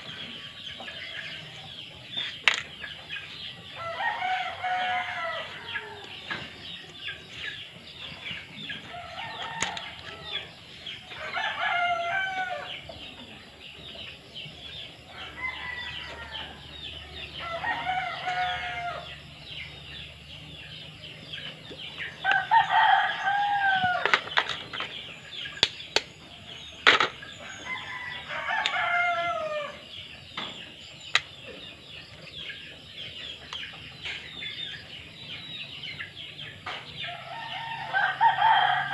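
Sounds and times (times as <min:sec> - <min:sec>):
roosters crowing: 0:00.0 - 0:13.0, 0:15.0 - 0:19.4, 0:21.9 - 0:25.4, 0:26.1 - 0:30.1, 0:35.6 - 0:38.9.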